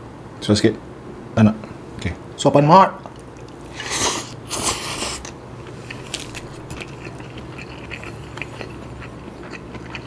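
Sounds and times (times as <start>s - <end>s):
wet chewing smacks: 3.1s - 10.0s.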